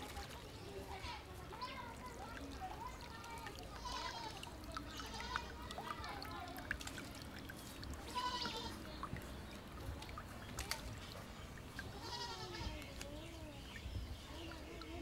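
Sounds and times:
soil clods crackling: 0:00.0 - 0:15.0
goats bleating: 0:03.7 - 0:05.6, 0:08.1 - 0:08.8, 0:11.8 - 0:12.8.

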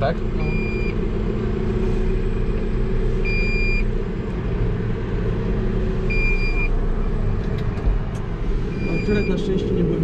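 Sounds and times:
tractor engine rumbling: 0:00.0 - 0:10.0
high electronic warning beep: 0:00.4 - 0:01.0, 0:03.2 - 0:03.9, 0:06.1 - 0:06.7, 0:08.7 - 0:09.5.

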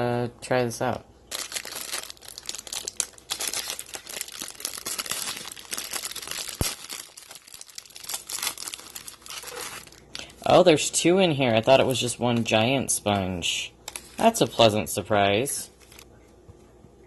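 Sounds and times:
plastic wrapping crinkling and tearing: 0:01.3 - 0:10.2, 0:15.8 - 0:16.1.

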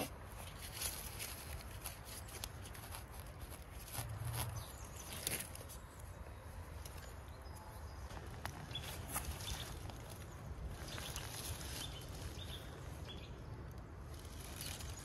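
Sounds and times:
dry leaves rustling and crackling: 0:00.0 - 0:06.2, 0:08.0 - 0:15.0.

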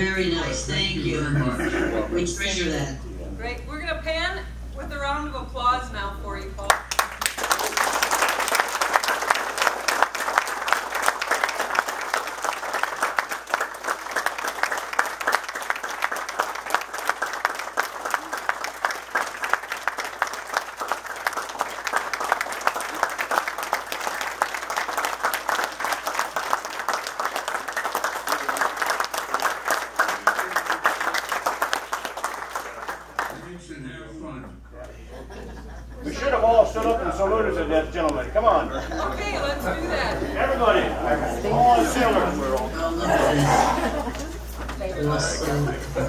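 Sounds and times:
crowd applauding: 0:06.6 - 0:33.5.

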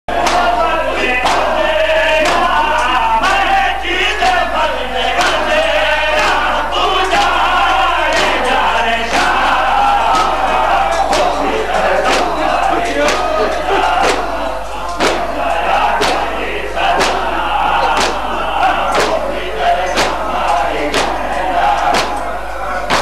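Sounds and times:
chest-beating strikes in unison: 0:00.1 - 0:01.6, 0:02.2 - 0:03.4, 0:06.2 - 0:23.0
crowd of men chanting: 0:00.1 - 0:23.0.

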